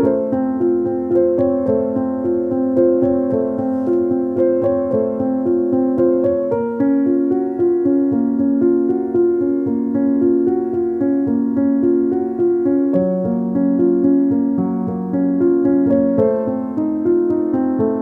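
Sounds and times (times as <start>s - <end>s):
slow piano music: 0.0s - 18.0s.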